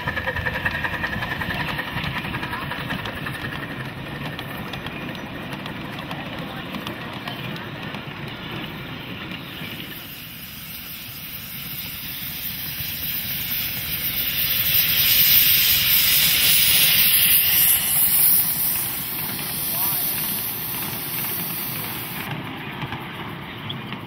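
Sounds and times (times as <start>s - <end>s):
train rumbling on track: 0.0s - 24.0s
loud high steam hiss: 7.5s - 23.2s.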